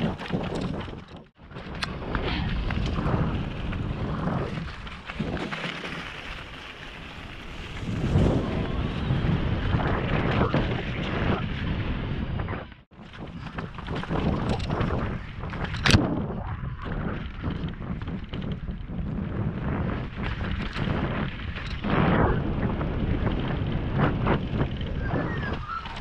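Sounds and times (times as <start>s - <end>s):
wind buffeting microphone: 0.0s - 6.4s, 7.1s - 26.0s
bike tyre rumble: 0.0s - 26.0s
bike clicks and knocks: 13.0s - 16.1s, 20.1s - 21.9s.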